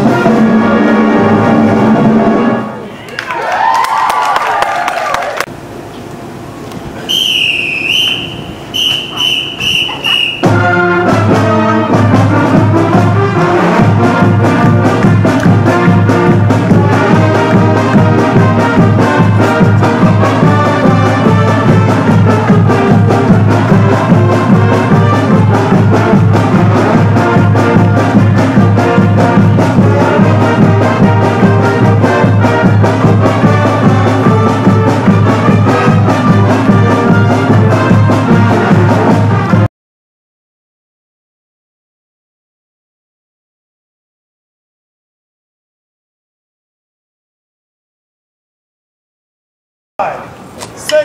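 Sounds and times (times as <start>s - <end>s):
marching band brass: 0.0s - 2.8s, 7.1s - 39.7s
steady drum beat: 8.1s - 39.7s.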